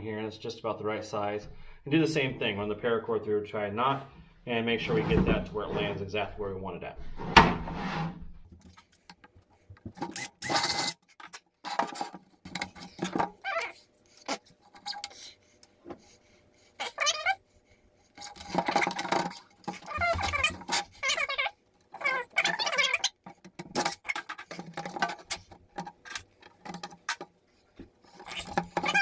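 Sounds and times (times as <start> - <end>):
cord squeaking on plastic: 9.8 - 15.3, 16.8 - 17.4, 18.2 - 27.3, 28.0 - 29.0
plastic crate rattling: 18.2 - 21.4, 22.0 - 27.3.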